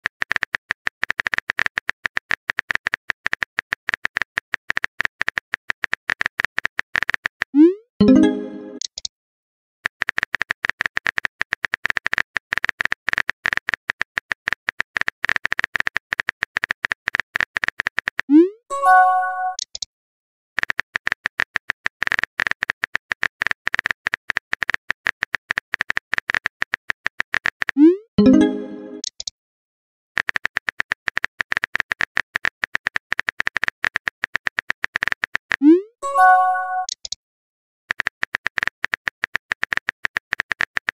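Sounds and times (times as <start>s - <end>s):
phone keyboard typing clicks: 36.3s - 37.2s, 37.9s - 40.9s.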